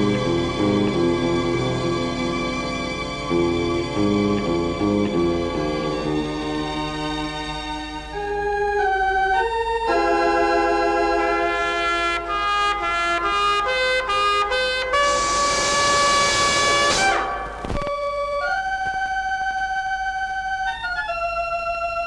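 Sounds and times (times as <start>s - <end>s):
brass chords: 0.0s - 18.6s
organ chords: 0.0s - 22.0s
noisy swell with downward slide: 14.9s - 17.7s.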